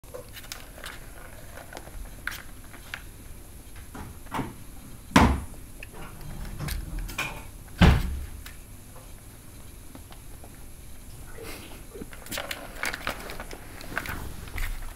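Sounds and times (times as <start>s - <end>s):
loud knocks: 4.0s - 5.5s.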